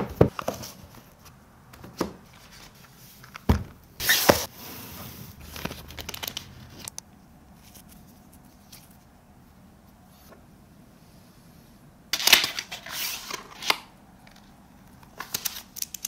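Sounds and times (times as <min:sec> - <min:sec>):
packaging rustling: 0:05.4 - 0:06.9
plastic packaging crinkling: 0:05.4 - 0:06.9.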